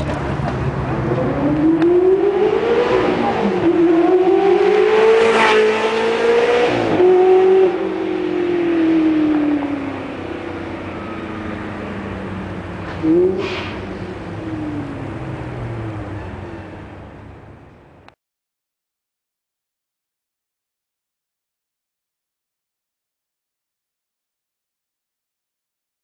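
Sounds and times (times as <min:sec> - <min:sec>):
sports car accelerating: 0:00.0 - 0:17.4.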